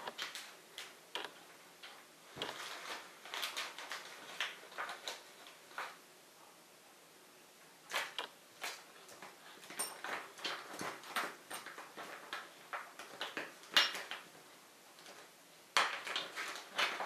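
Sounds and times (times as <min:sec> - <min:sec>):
rummaging through plastic box: 0:02.4 - 0:06.0, 0:07.9 - 0:14.4, 0:15.0 - 0:17.0.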